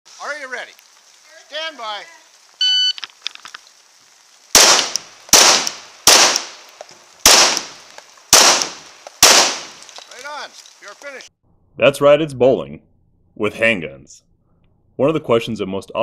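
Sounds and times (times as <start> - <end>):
electronic timer beep: 2.6 - 3.0
pistol shots with echo: 4.6 - 6.6, 7.2 - 9.8.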